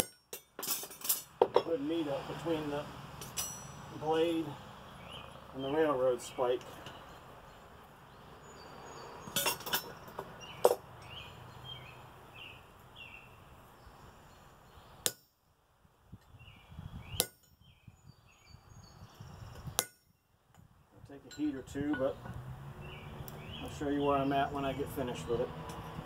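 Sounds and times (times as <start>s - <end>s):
hammer clinking on metal tool: 3.2s - 3.8s, 21.2s - 22.4s.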